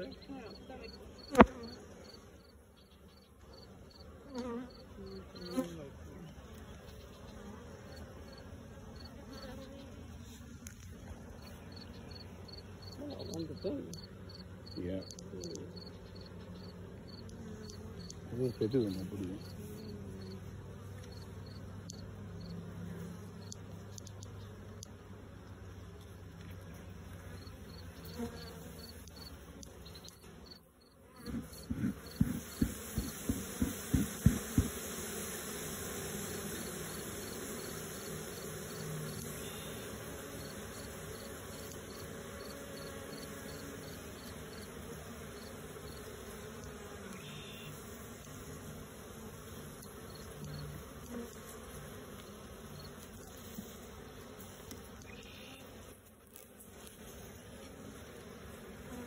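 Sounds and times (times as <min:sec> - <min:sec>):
honeybees buzzing: 0:00.0 - 0:59.0
low thumps: 0:31.3 - 0:34.8.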